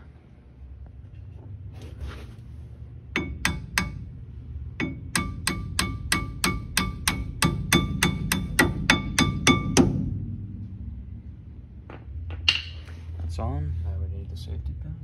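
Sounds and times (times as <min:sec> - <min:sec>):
hammer tapping metal pin: 0:03.1 - 0:04.1, 0:04.8 - 0:10.0.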